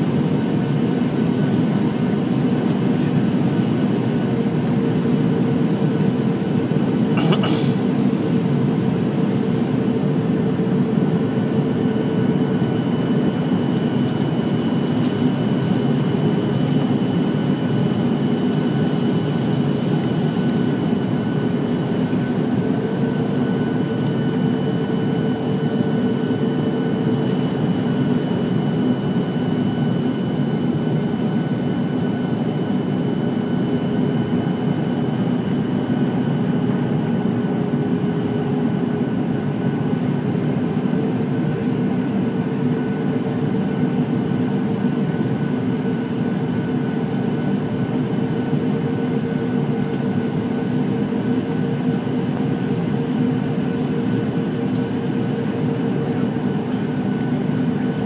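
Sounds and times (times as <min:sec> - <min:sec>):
jet engines droning in cabin: 0:00.0 - 0:58.0.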